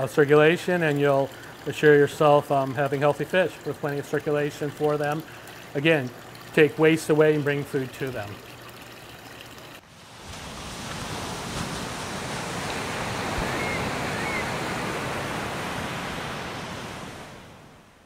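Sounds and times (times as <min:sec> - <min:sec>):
ocean waves washing: 0:09.8 - 0:18.0.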